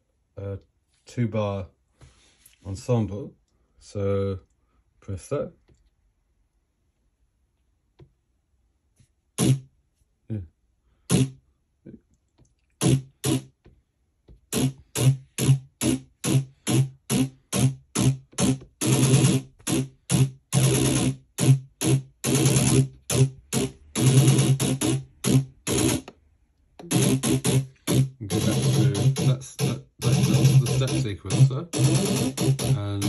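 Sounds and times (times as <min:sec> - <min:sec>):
electronic drum beat: 0:14.6 - 0:26.1, 0:26.8 - 0:33.0.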